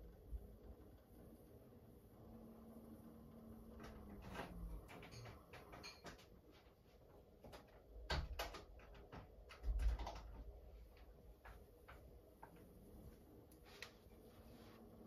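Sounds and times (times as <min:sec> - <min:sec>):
faint hum: 0:00.0 - 0:05.8
washing machine drum clicking: 0:03.4 - 0:06.4, 0:07.5 - 0:12.5.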